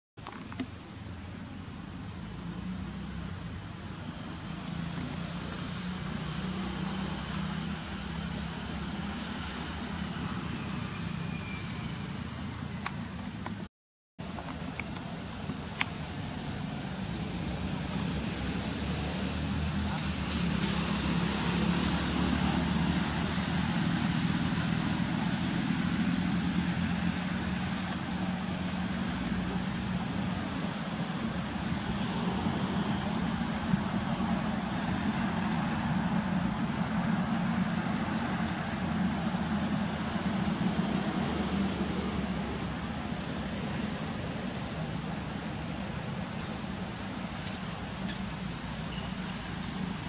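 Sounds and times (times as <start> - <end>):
constant hiss: 0.2 - 11.0
low engine-like drone: 14.2 - 50.0.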